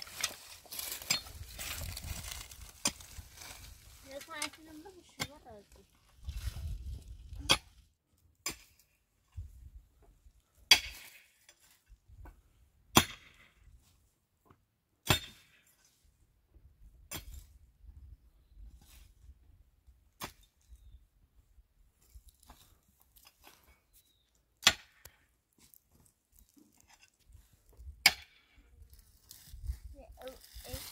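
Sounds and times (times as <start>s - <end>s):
hand tool striking stony soil: 0.0s - 5.4s, 8.4s - 8.8s, 10.7s - 11.4s, 12.9s - 13.5s, 15.0s - 15.6s, 17.1s - 17.5s, 20.2s - 20.6s, 24.6s - 27.1s, 27.8s - 28.6s.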